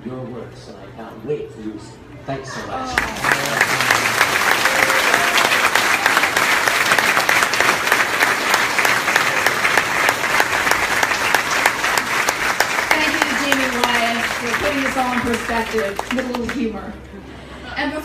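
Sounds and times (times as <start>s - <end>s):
audience applauding: 2.9s - 16.8s.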